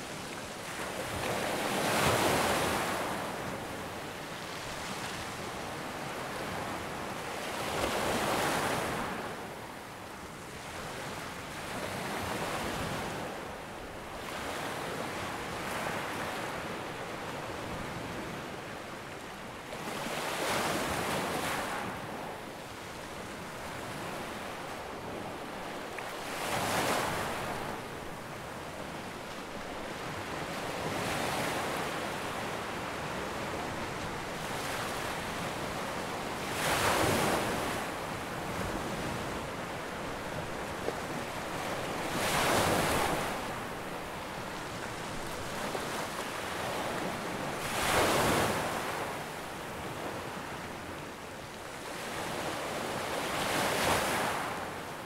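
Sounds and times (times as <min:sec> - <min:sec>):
waves breaking on shore: 0:22.9 - 0:51.0.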